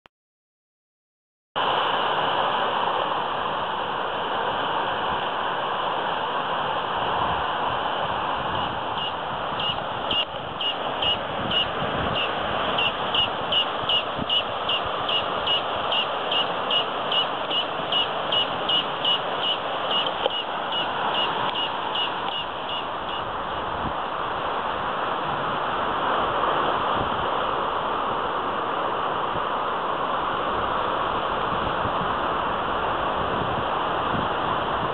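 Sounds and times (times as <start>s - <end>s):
high repeating chirp: 9.0s - 23.2s.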